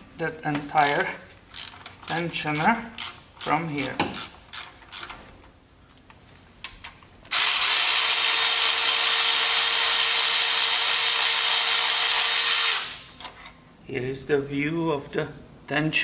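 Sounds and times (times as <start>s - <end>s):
power ratchet whining: 0.8s - 5.2s, 7.3s - 13.2s.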